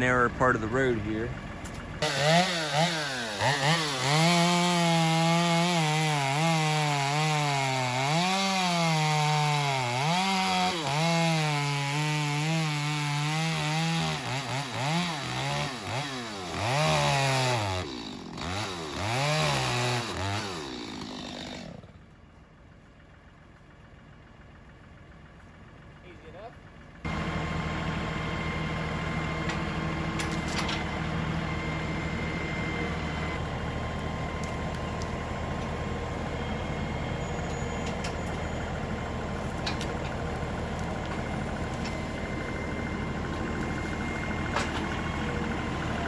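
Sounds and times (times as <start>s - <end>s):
chainsaw cutting wood: 2.0s - 22.0s.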